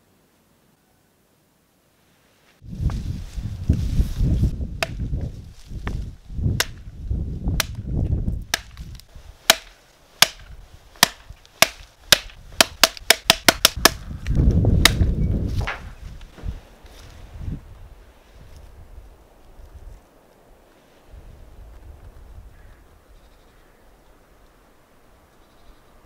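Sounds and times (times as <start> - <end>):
wind rumbling on microphone: 2.6 - 9.4, 12.0 - 24.4
hatchet chopping wood: 4.8 - 5.1, 6.6 - 6.9, 7.5 - 7.8, 8.5 - 14.0, 14.8 - 15.8.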